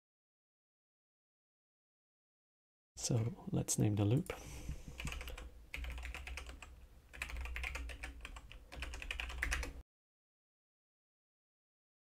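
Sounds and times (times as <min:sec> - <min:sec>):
keyboard typing clicks: 0:05.0 - 0:09.8.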